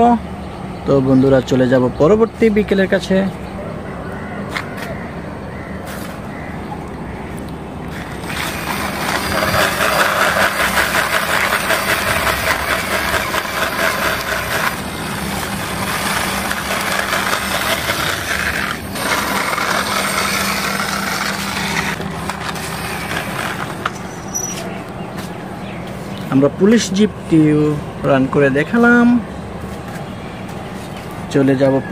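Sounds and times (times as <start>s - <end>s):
toy wheels rolling on concrete: 7.9s - 24.7s.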